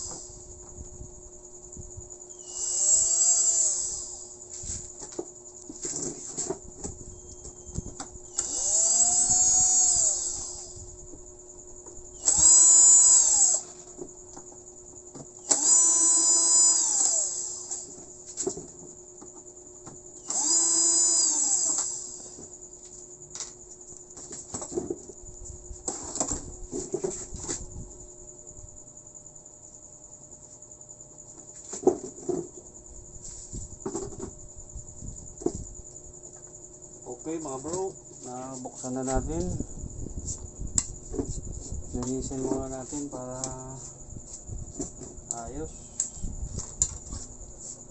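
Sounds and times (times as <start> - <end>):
cordless drill whining: 0.0 - 0.4, 2.4 - 4.4, 7.2 - 10.9, 12.2 - 13.8, 15.4 - 18.0, 20.2 - 22.4.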